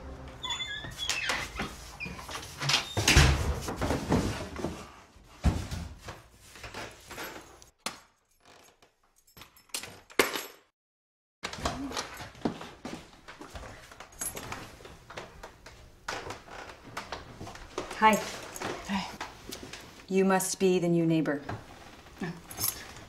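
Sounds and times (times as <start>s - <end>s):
front door opening and shutting: 0.0s - 3.6s.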